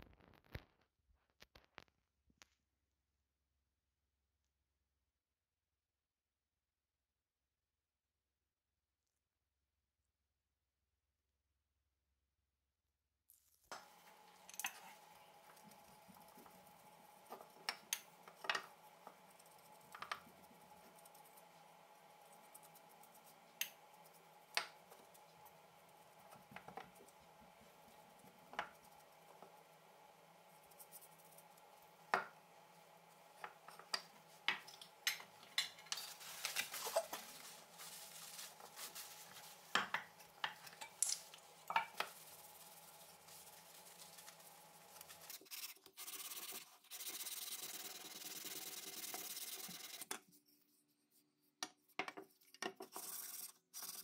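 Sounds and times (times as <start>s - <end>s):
gloved hand rubbing wood: 14.9s - 29.8s, 41.9s - 50.0s, 52.3s - 54.0s.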